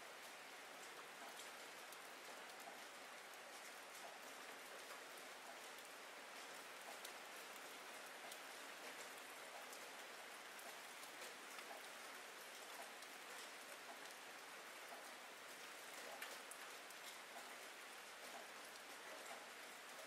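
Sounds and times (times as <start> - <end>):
faint steady rain: 0.0 - 20.0.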